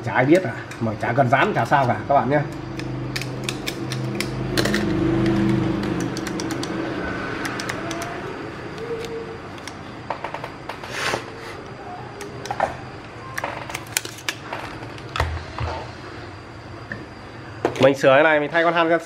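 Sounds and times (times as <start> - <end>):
small tools clicking and tapping: 1.6 - 6.8, 7.4 - 10.8, 12.2 - 15.3.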